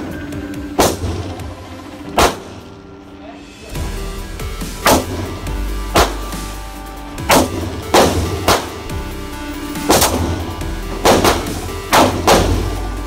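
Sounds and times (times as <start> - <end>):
background music: 0.0 - 13.0
pistol shots echoing: 0.8 - 1.5, 2.1 - 2.6, 7.3 - 8.8, 9.9 - 12.8.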